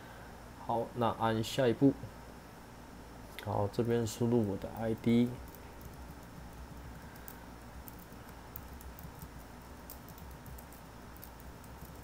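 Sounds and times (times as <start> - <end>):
low steady hum: 0.0 - 12.0
typing on computer keyboard: 4.8 - 12.0.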